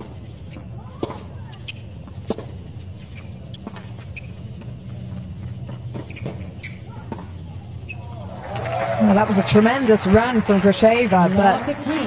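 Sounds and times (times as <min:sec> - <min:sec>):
low stadium hum: 0:00.0 - 0:12.0
tennis ball struck with rackets: 0:00.8 - 0:02.6.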